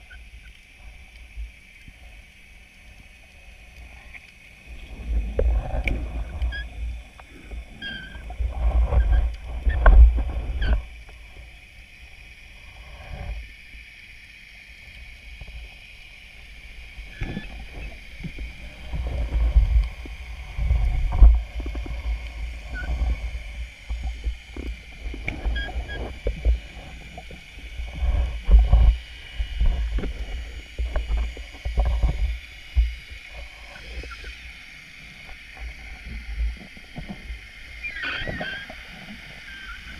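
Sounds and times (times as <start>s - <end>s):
faint clicks: 0.0s - 4.5s
muffled underwater rumble: 0.0s - 39.9s.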